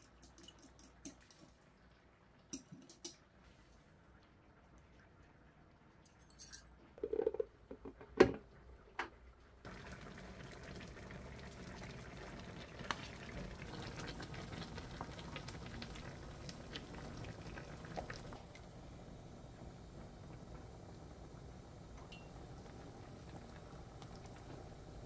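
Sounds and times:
metal whisk clinking bowl: 0.0 - 1.4
food simmering with bubbling hiss: 0.0 - 7.6, 8.6 - 25.0.

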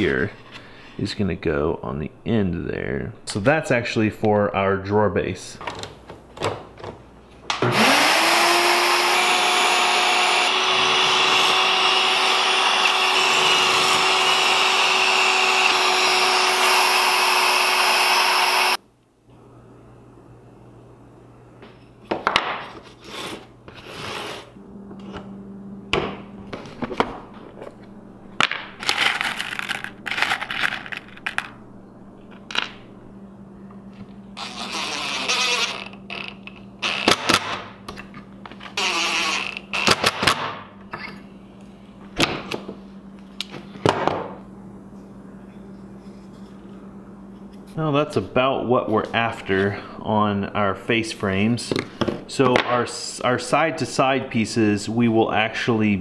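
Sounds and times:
cordless drill driving screws: 7.7 - 18.8
screws being handled: 28.8 - 31.6.

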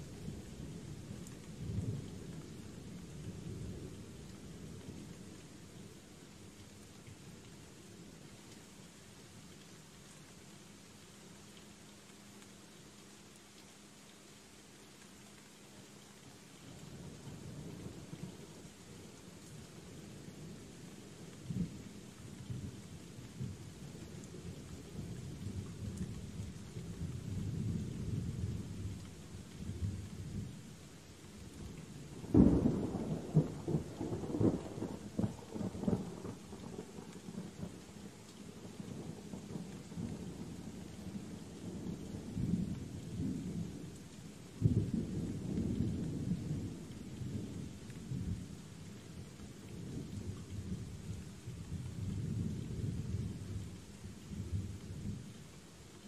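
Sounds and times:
rain hiss: 0.0 - 56.0
low rolling thunder: 32.1 - 37.8, 44.6 - 48.5, 49.7 - 55.3.

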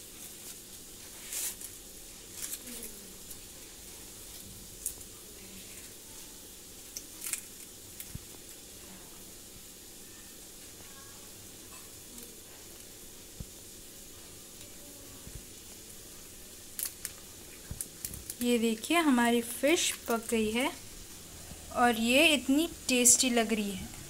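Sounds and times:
dry leaves crackling: 0.0 - 8.6, 16.2 - 23.8
faint steady hiss: 0.0 - 24.0.

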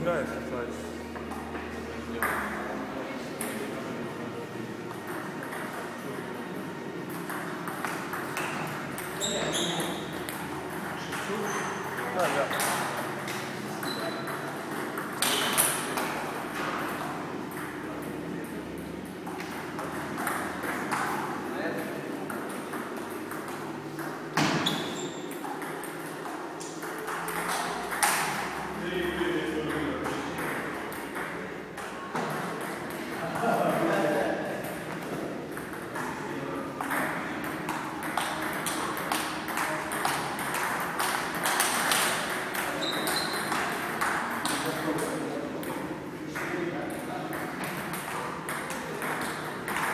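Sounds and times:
table tennis balls clicking: 4.9 - 28.8, 34.5 - 49.9.

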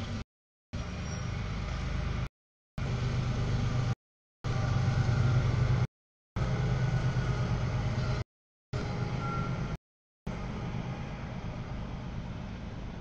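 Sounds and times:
freight train wheels rumbling on rail: 4.5 - 8.2.

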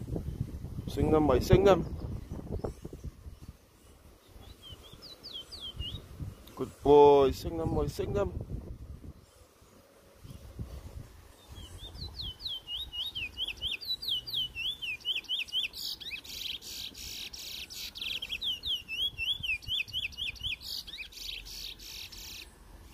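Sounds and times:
harsh buzzy bird trills: 0.8 - 8.3, 9.0 - 22.9
finch singing whistled notes: 3.8 - 6.9, 11.4 - 22.6.

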